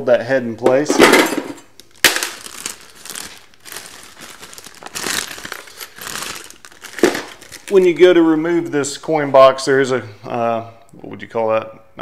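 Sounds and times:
plastic bag crinkling: 0:01.8 - 0:08.2.

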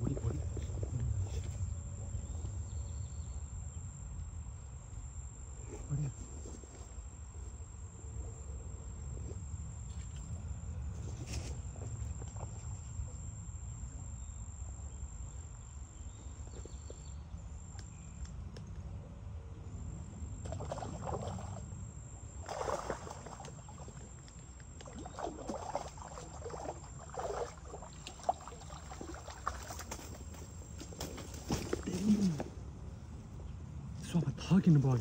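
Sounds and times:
high insect-like whine: 0:00.0 - 0:18.7, 0:19.6 - 0:35.0
steady low rumble: 0:00.0 - 0:25.2.

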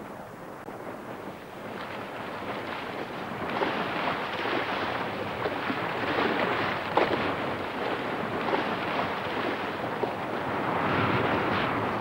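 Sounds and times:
sea water rushing and splashing: 0:00.0 - 0:12.0
wind buffeting microphone: 0:00.0 - 0:12.0.

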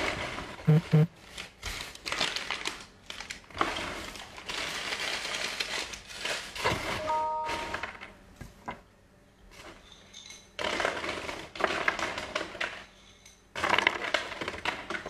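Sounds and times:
paper crumpling: 0:01.2 - 0:07.0.

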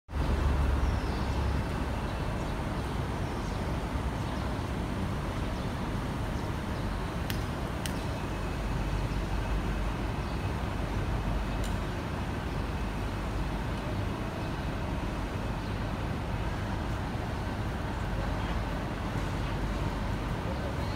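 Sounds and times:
road traffic rumble: 0:00.1 - 0:20.9.

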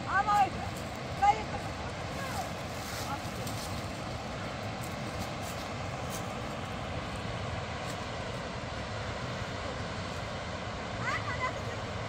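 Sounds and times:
river rushing over rapids: 0:00.0 - 0:12.0.

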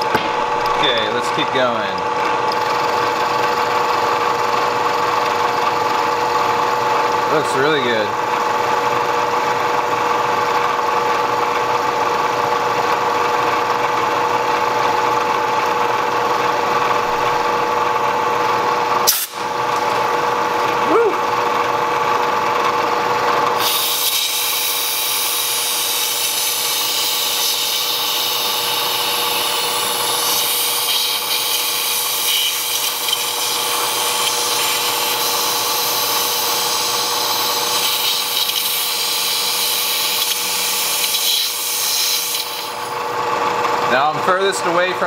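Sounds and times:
milling machine cutting steel: 0:23.5 - 0:43.2.

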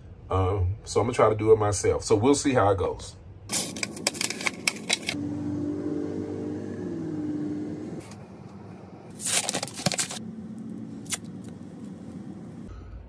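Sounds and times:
low hum: 0:03.3 - 0:13.0
plastic packaging crinkling: 0:09.1 - 0:10.2.

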